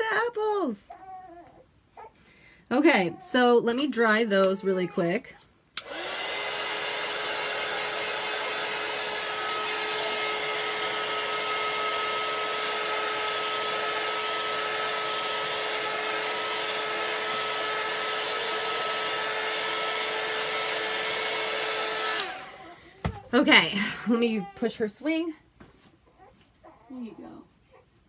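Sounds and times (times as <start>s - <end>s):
handheld dryer blowing: 2.8s - 25.2s.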